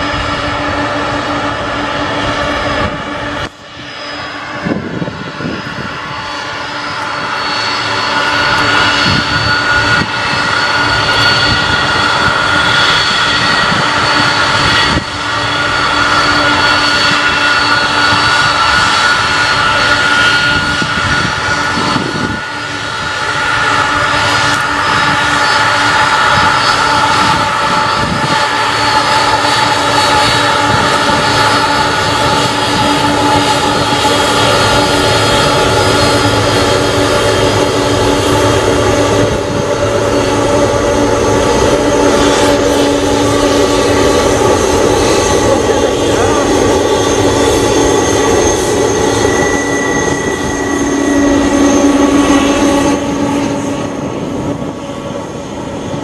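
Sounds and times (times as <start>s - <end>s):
engine rumble: 0.0s - 56.0s
jet engine whine: 0.0s - 56.0s.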